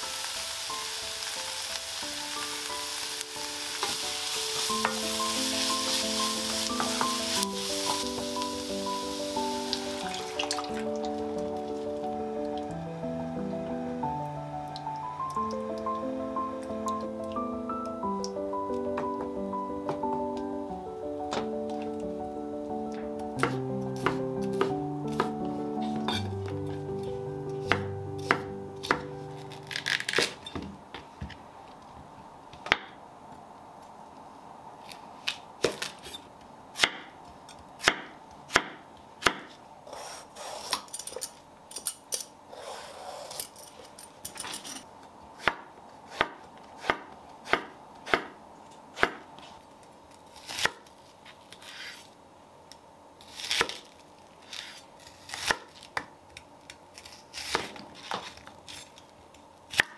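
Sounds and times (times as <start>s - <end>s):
knife chopping on wooden board: 23.4s - 25.4s, 45.4s - 48.4s.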